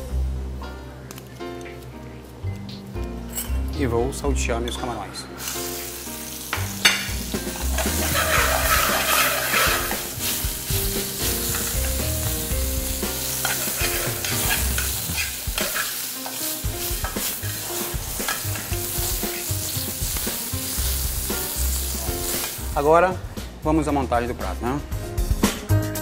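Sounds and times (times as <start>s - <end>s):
shrimp sizzling in a pan: 5.4s - 22.8s
metal spoon scraping a pan: 6.8s - 10.4s, 13.4s - 19.5s.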